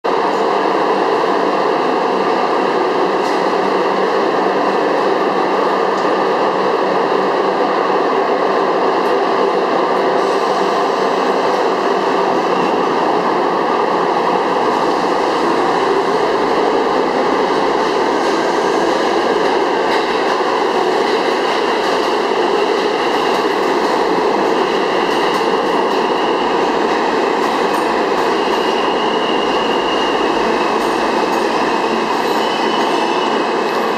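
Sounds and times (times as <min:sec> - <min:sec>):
subway train motors and wheels: 0:00.0 - 0:33.9.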